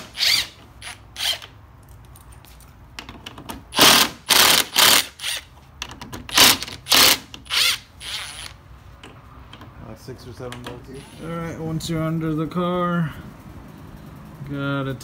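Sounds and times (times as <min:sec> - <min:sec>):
cordless driver spinning bursts: 0:00.0 - 0:01.4, 0:03.7 - 0:05.5, 0:06.3 - 0:08.6.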